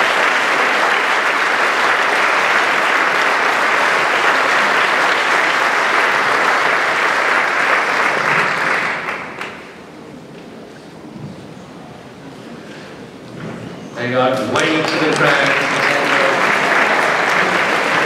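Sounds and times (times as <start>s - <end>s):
audience applauding: 0.0s - 9.9s, 14.3s - 18.0s.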